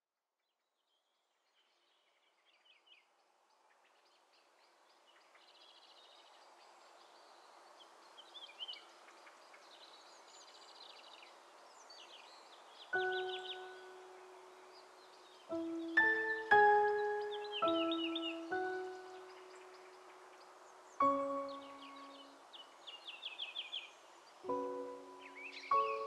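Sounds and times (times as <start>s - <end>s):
birds chirping and trilling: 3.7s - 26.0s.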